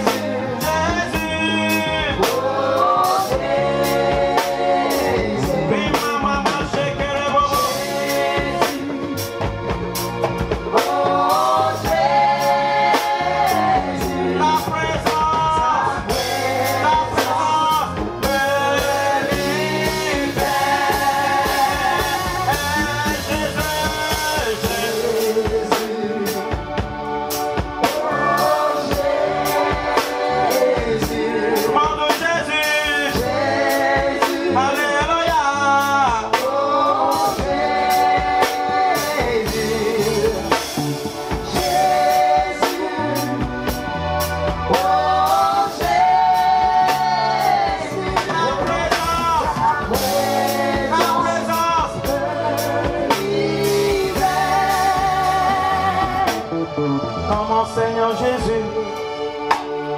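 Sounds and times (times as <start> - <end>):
man singing into microphone: 0.0 - 2.5, 5.1 - 9.0, 14.3 - 26.6, 34.0 - 37.5, 48.0 - 56.0, 57.2 - 59.2
drum kit steady beat: 0.0 - 59.9.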